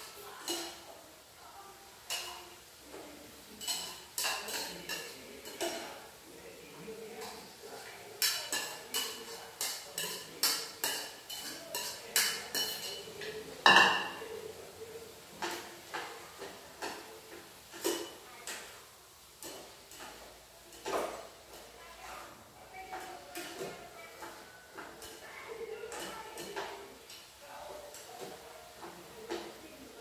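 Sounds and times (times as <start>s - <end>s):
chopsticks clinking on a metal pot: 3.6s - 6.0s, 7.0s - 14.5s, 17.7s - 18.7s, 22.7s - 29.9s
spoon knocking on a bowl: 13.7s - 14.2s.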